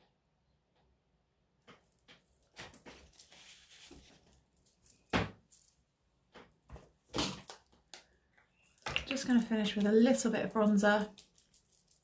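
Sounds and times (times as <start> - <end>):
soft rustle: 1.9 - 5.8.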